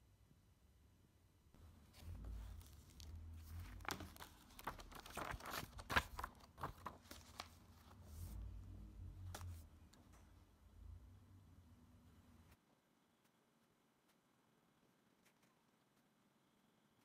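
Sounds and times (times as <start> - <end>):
paper rustling and crackling: 1.8 - 8.4.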